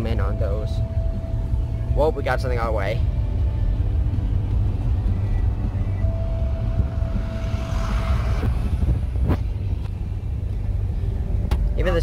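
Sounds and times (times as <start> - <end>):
engine and road noise: 0.0 - 12.0
thin steady tone: 4.8 - 9.7.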